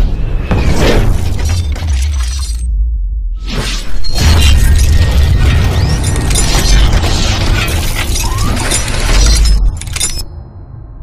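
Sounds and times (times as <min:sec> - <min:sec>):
deep rumble: 0:00.0 - 0:03.5
shattering and crashing blast: 0:04.1 - 0:09.8.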